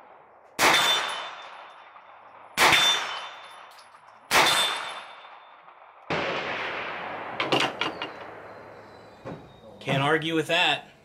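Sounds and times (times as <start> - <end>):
gunshots: 0.0 - 3.7, 4.3 - 9.0.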